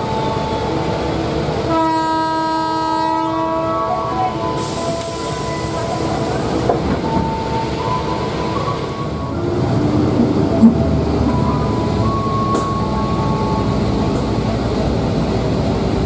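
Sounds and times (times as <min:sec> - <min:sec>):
low train rumble: 0:00.0 - 0:16.0
train horn: 0:01.6 - 0:06.2.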